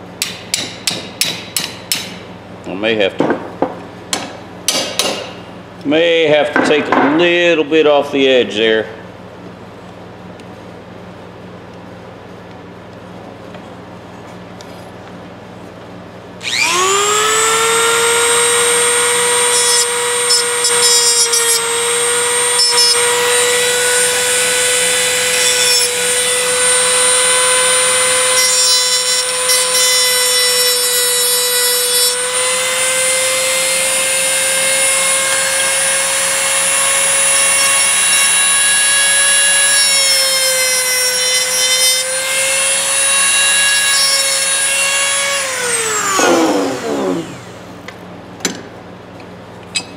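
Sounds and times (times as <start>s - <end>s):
rotary tool high whine: 16.4s - 47.9s.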